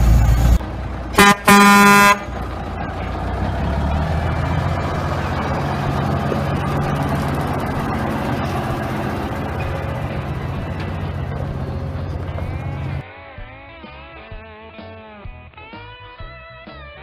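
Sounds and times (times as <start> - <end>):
truck engine rumbling: 0.0 - 13.6
truck horn: 0.3 - 3.1.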